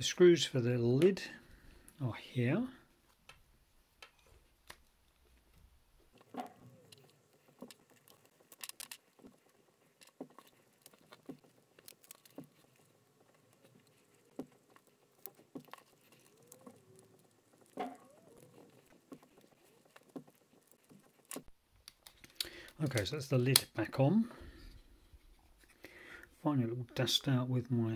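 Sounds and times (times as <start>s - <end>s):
fingers handling metal chassis: 6.2s - 23.6s.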